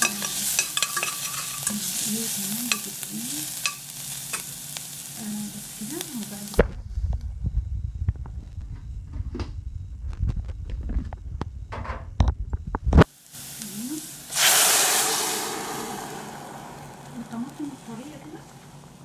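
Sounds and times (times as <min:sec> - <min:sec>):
spoon stirring against metal: 0:00.0 - 0:04.5
onion sizzling in a pot: 0:00.0 - 0:07.0, 0:13.0 - 0:19.0
low muffled rumbling: 0:06.4 - 0:13.0.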